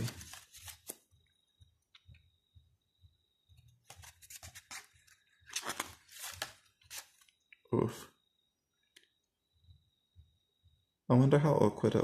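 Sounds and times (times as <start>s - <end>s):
page turning rustle: 0.0s - 1.0s, 3.8s - 7.4s.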